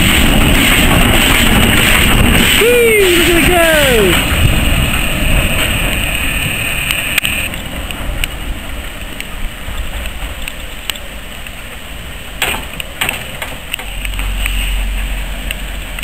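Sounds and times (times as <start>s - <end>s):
steam locomotive hissing: 0.0s - 7.8s
low rumble of locomotive: 0.0s - 16.0s.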